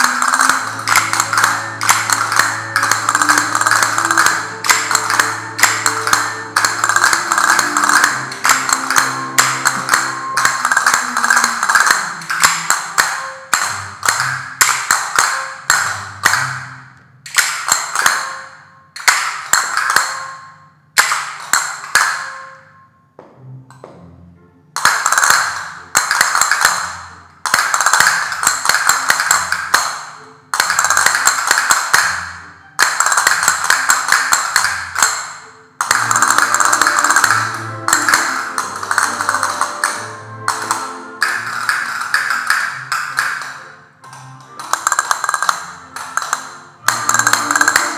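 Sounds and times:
castanets clicking rapidly: 0.0 - 16.6, 24.8 - 32.2, 32.8 - 43.7, 44.5 - 47.9
background music: 0.0 - 47.9.

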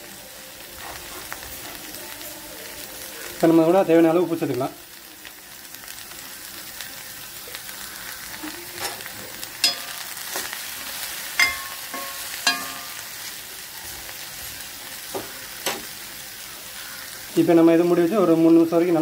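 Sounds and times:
okra sizzling in hot oil: 0.0 - 19.0
steel spoon clinking on pan: 9.6 - 10.5, 11.4 - 13.1.

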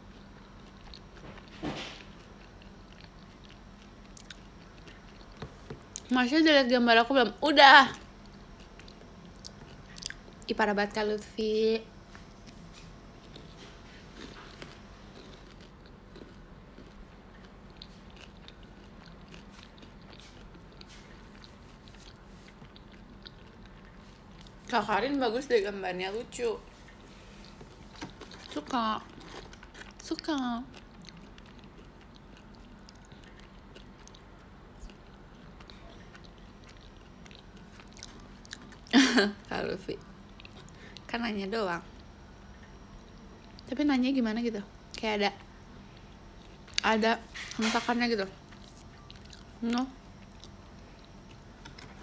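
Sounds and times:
person chewing food: 0.0 - 6.1, 8.0 - 10.5, 12.0 - 24.7, 26.6 - 38.9, 40.0 - 41.1, 45.8 - 46.9, 48.4 - 52.0
low room hum: 0.0 - 52.0.

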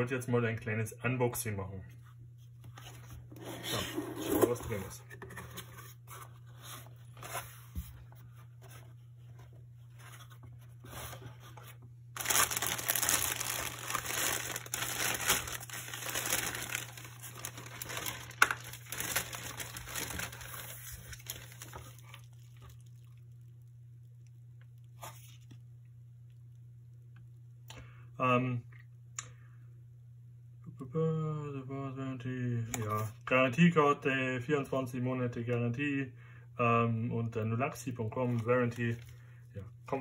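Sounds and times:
plastic bag and bubble wrap crinkling: 12.1 - 23.3.

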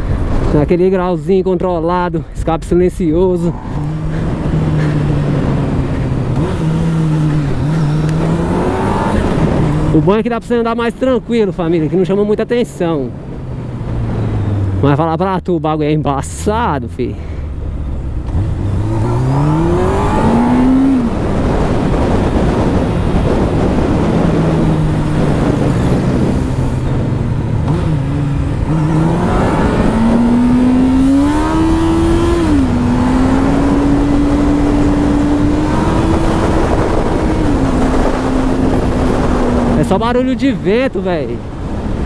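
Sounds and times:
wind noise on microphone: 2.4 - 10.3, 18.2 - 42.0
motorcycle engine shifting gears: 3.6 - 10.1, 17.5 - 40.0.

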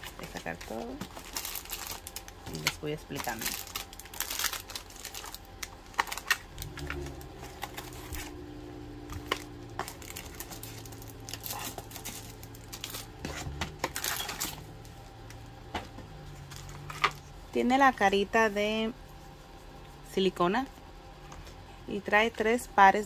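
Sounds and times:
plastic packaging crinkling: 0.0 - 15.4
low steady hum: 0.0 - 23.0.

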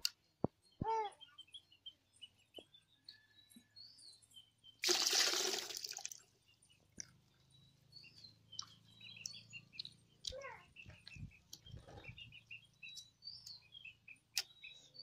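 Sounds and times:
birds chirping: 0.0 - 15.0
water splashing in a steel pot: 4.8 - 6.2.

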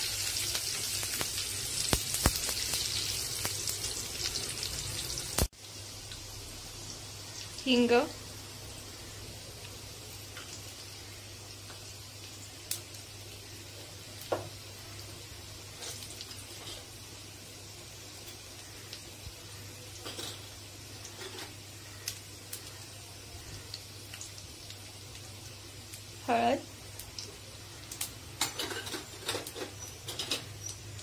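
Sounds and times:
hot oil sizzling: 0.0 - 31.0
sharp pops: 1.0 - 2.8.

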